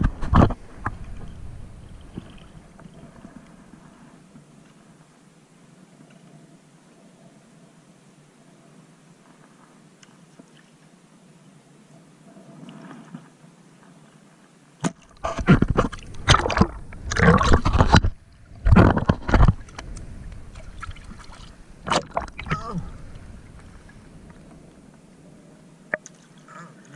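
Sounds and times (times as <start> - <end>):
water splashing: 0.0 - 3.9, 14.8 - 26.9
water sloshing and gurgling: 0.0 - 4.9, 12.2 - 14.1, 14.8 - 26.9.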